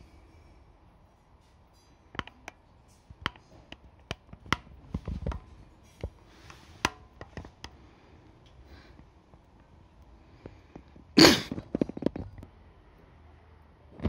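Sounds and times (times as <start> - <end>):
sharp clicks and light taps: 2.1 - 2.6, 3.2 - 7.8.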